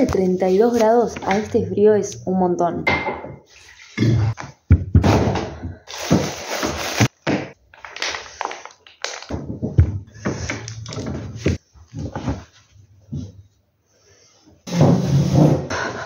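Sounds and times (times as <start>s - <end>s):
plastic bag crinkling: 5.9s - 9.3s.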